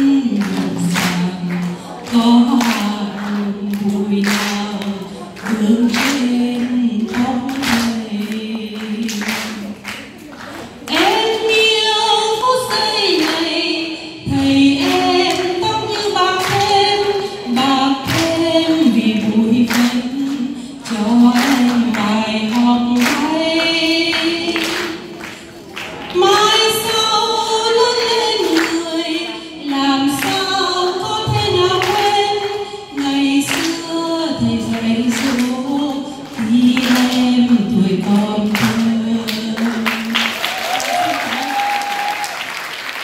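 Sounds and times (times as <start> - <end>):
woman singing unaccompanied: 0.0 - 25.3, 26.0 - 41.5.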